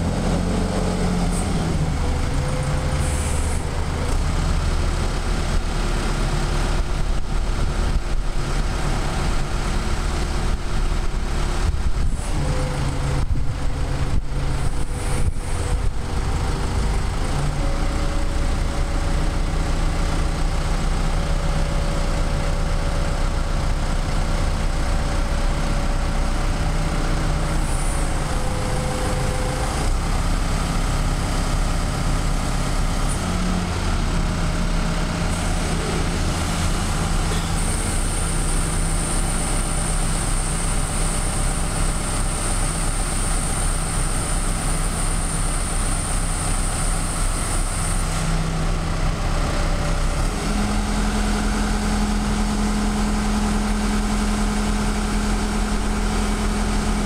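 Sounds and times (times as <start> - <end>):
hydraulic whine: 0.0 - 21.3, 25.2 - 57.0
forklift engine running: 0.0 - 57.0.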